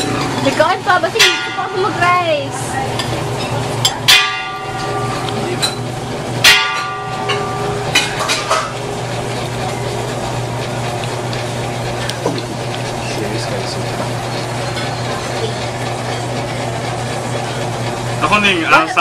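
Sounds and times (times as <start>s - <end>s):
steady low hum: 0.0s - 19.0s
tableware clinking: 1.2s - 8.8s.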